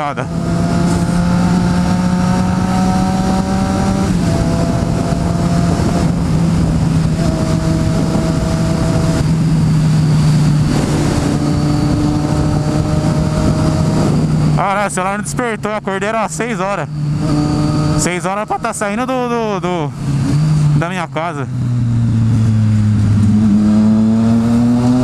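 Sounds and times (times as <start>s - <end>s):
wind rushing over microphone: 0.0s - 20.8s, 21.4s - 25.0s.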